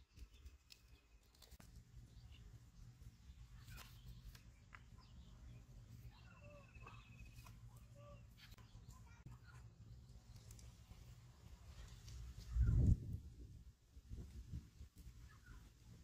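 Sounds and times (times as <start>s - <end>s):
faint bird chirps: 2.0s - 10.8s, 15.1s - 15.8s.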